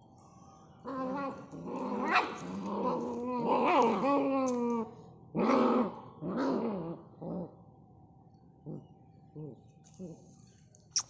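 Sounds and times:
puppies growling: 0.8 - 4.8.

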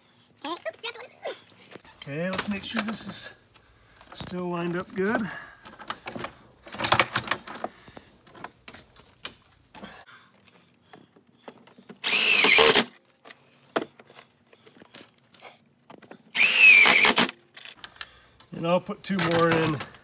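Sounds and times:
handling clicks and knocks: 4.0 - 9.8, 19.1 - 20.0
cordless driver running: 12.0 - 12.9, 16.4 - 17.3.

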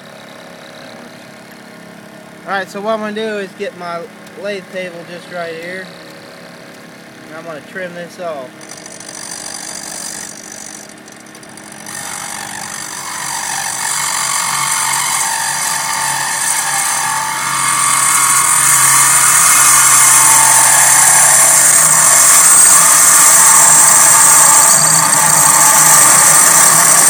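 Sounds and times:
electric motor humming: 8.5 - 27.0
lathe tool cutting metal: 8.6 - 27.0.

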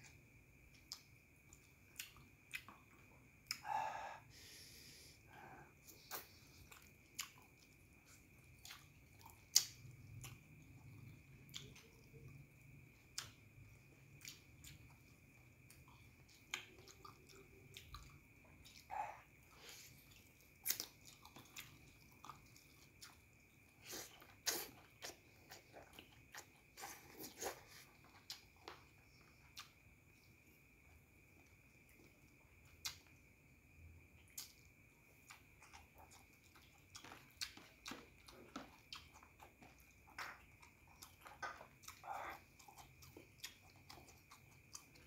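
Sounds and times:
person chewing food: 0.0 - 33.2, 34.0 - 45.0
mouth clicks and smacks: 8.5 - 10.5.

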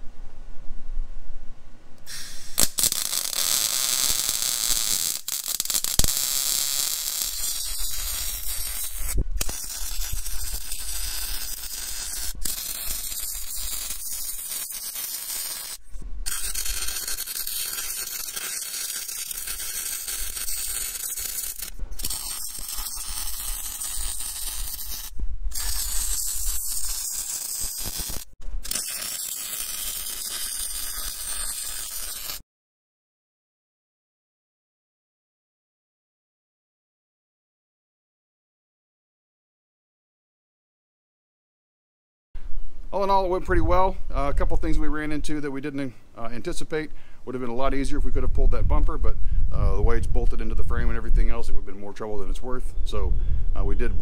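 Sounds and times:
welding arc crackling hiss: 2.0 - 32.4.

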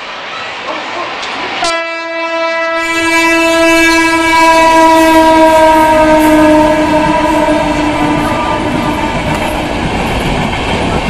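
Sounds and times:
passing train rumble: 0.0 - 11.0
locomotive horn long note: 1.6 - 9.7.

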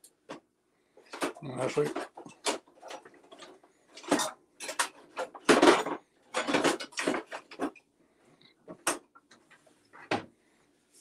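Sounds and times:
dishes and utensils clinking: 1.2 - 7.7.

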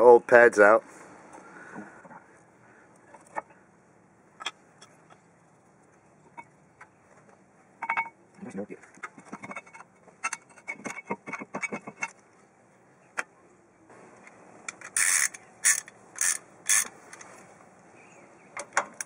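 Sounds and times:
loud rasping bursts: 14.9 - 17.0.

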